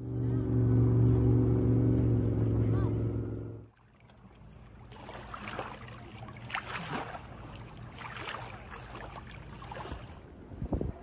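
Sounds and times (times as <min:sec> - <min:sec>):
distant motor humming: 0:00.0 - 0:03.7
waves lapping against rocks: 0:03.7 - 0:10.6.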